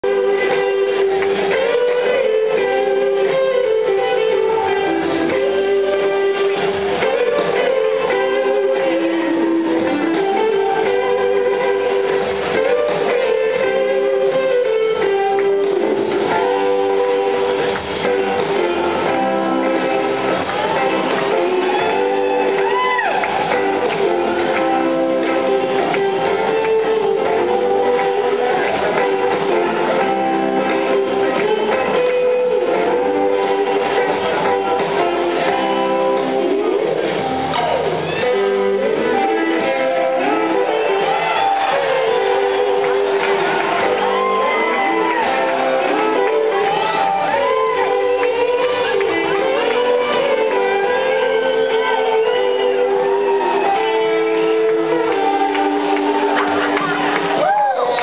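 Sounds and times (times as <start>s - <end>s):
electric guitar pitch glide: 0.0s - 57.4s
live rock band: 0.0s - 58.0s.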